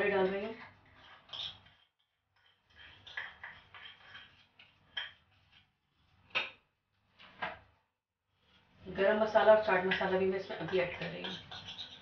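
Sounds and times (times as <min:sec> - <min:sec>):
spoon scraping mixing bowl: 0:00.2 - 0:06.3, 0:09.7 - 0:12.0.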